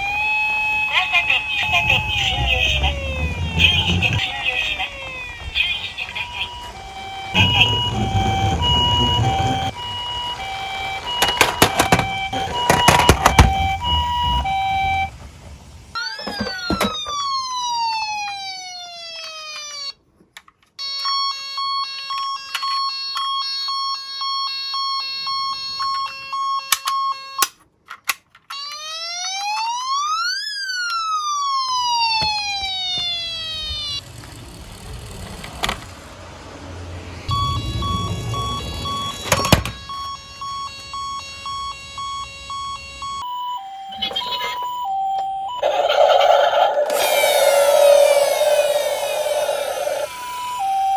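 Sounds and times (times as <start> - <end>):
electronic two-tone toy siren: 0.0 - 15.1, 15.9 - 20.0, 20.8 - 27.6, 28.4 - 34.1, 37.2 - 50.9
pulsing electronic tone: 45.6 - 50.2
electronic whistle glides: 45.6 - 50.9.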